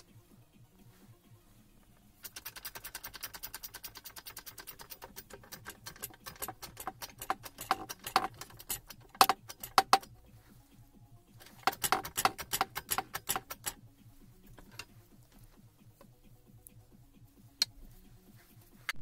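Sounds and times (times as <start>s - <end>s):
ratchet wrench clicking: 2.2s - 10.1s, 11.4s - 13.8s.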